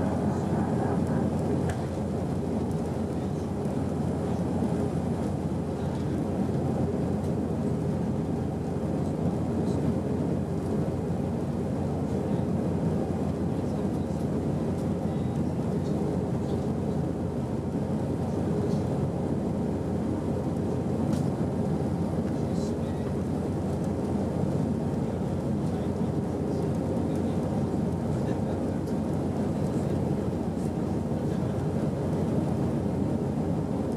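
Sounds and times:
faint hum: 0:00.0 - 0:33.9.

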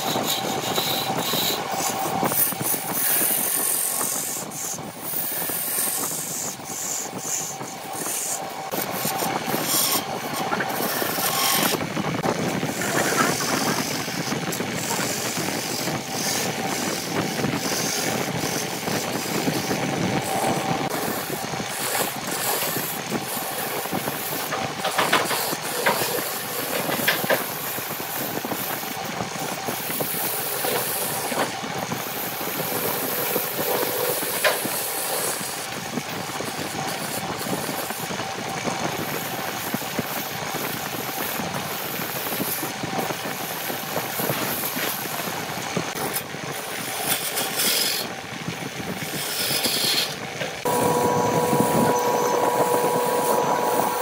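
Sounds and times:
turning tool hissing on wood: 0:00.1 - 0:11.8, 0:12.7 - 0:35.7.

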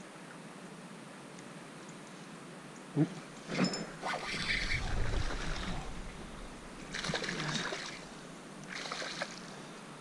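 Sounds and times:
fish splashing at water surface: 0:06.9 - 0:08.1, 0:08.7 - 0:09.4.

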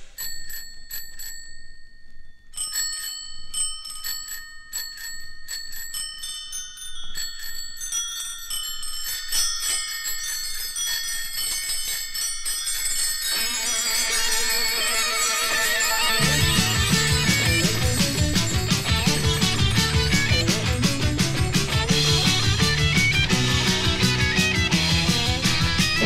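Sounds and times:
chiming bell tones: 0:00.0 - 0:26.0
guitar-led music: 0:13.4 - 0:26.0.

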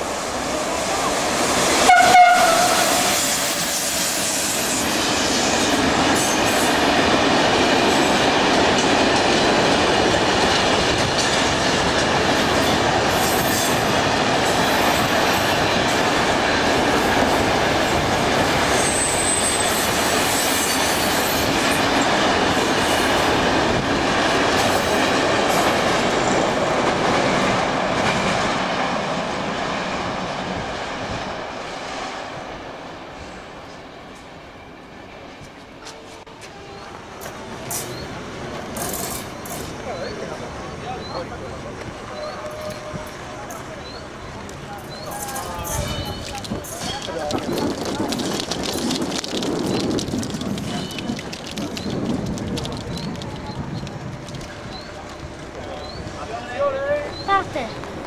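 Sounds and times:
train wheels rumbling on rail: 0:00.0 - 0:58.0
wheels squealing: 0:18.5 - 0:22.1, 0:44.8 - 0:57.9.

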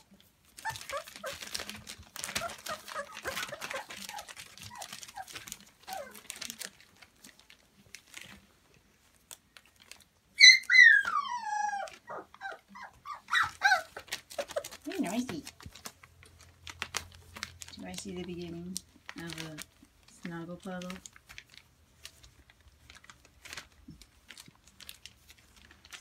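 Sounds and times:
puppies whimpering and yelping: 0:00.0 - 0:06.7, 0:10.3 - 0:15.2
paws scuffling on plastic sheeting: 0:00.1 - 0:26.0.

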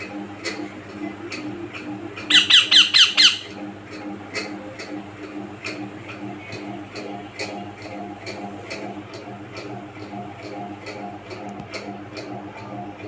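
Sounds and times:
parakeet squawking: 0:02.2 - 0:03.6.

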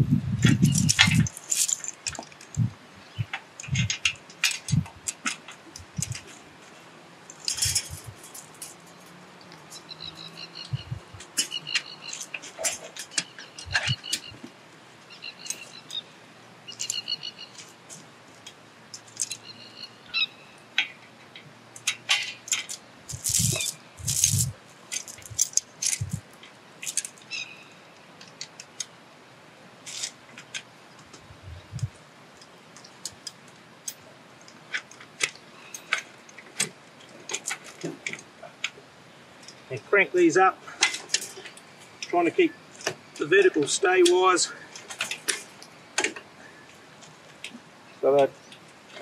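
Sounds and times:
chain links clinking: 0:00.6 - 0:02.5, 0:07.3 - 0:09.2, 0:22.5 - 0:26.2.

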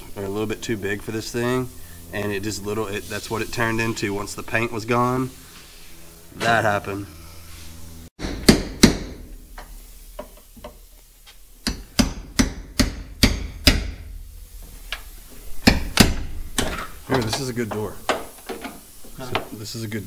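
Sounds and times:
metal knocks and clanks: 0:11.7 - 0:18.8.

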